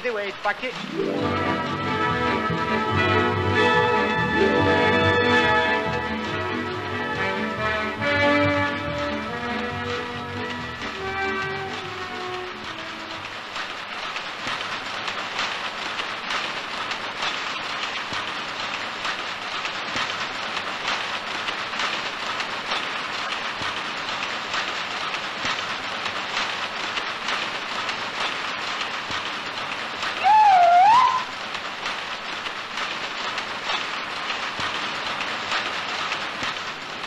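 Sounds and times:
power looms clattering: 0:00.0 - 0:30.6
wavering high-pitched tone: 0:30.2 - 0:31.3.

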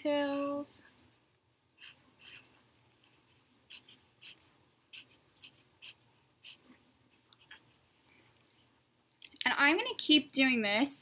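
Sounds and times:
pen scratching on paper: 0:01.8 - 0:06.6.

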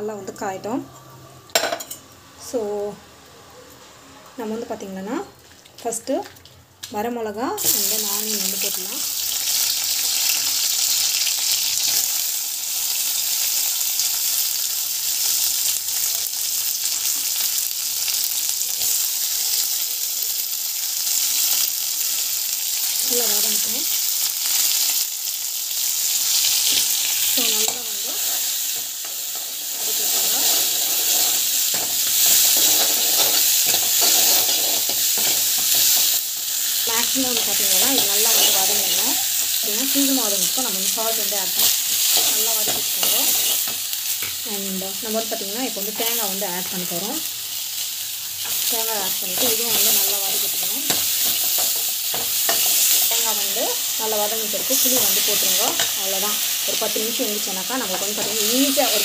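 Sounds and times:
food sizzling in hot oil: 0:01.5 - 0:03.3, 0:07.4 - 0:59.0
spoon scraping a pan: 0:26.6 - 0:36.2, 0:37.0 - 0:39.6, 0:41.6 - 0:44.4, 0:48.4 - 0:53.6.

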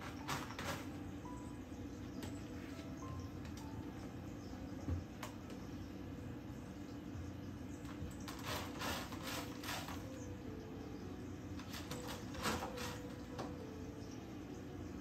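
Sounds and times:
cat scratching in litter box: 0:00.0 - 0:01.0, 0:07.9 - 0:10.2, 0:11.6 - 0:13.4.

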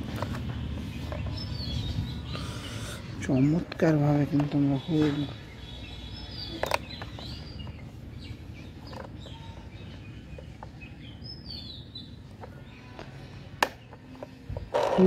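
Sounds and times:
birds chirping: 0:00.0 - 0:15.0
low steady outdoor noise: 0:00.0 - 0:15.0
toy wheel plastic clicks: 0:13.6 - 0:15.0.

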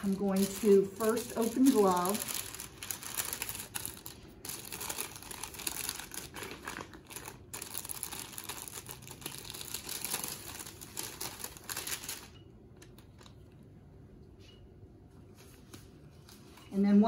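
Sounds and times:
stiff paper rustling and crackling: 0:00.0 - 0:12.4.

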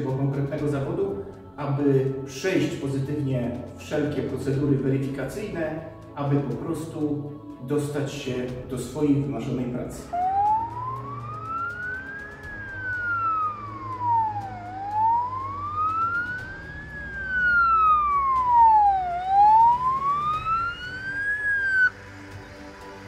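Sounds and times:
police siren wailing: 0:10.0 - 0:22.2.

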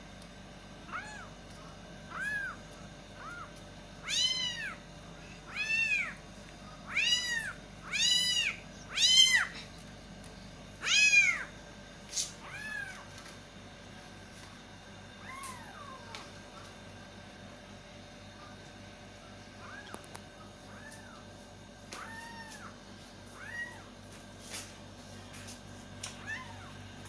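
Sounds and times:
kittens meowing: 0:00.9 - 0:01.3, 0:02.1 - 0:04.8, 0:05.4 - 0:06.2, 0:06.8 - 0:09.6, 0:10.8 - 0:11.5, 0:12.3 - 0:13.1, 0:15.2 - 0:16.3, 0:19.6 - 0:21.2, 0:21.9 - 0:23.9, 0:26.1 - 0:26.8.

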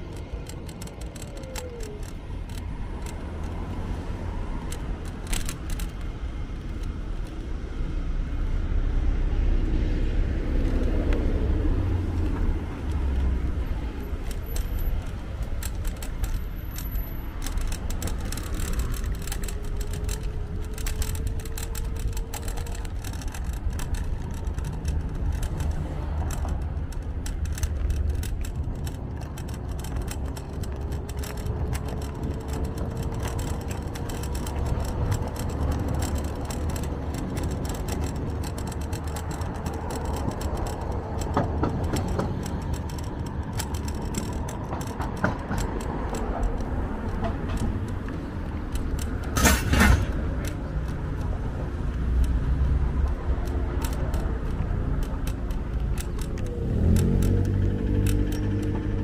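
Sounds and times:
scooter rattling and clicking: 0:00.0 - 0:59.0
scooter rumbling over pavement: 0:00.0 - 0:59.0.

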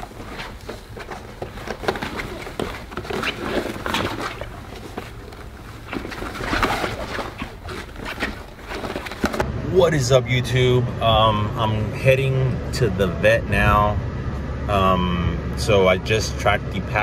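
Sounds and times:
paws scratching on fabric: 0:00.0 - 0:09.4.

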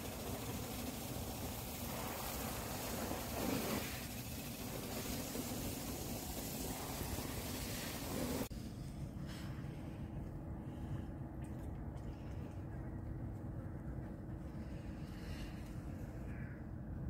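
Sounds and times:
hiss: 0:00.0 - 0:08.5.

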